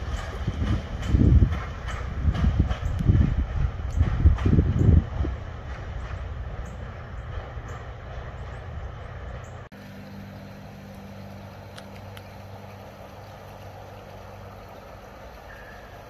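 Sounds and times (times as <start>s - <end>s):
wind on microphone: 0.0s - 7.7s
diesel railcar running: 0.0s - 16.0s
distant train engine hum: 0.0s - 16.0s.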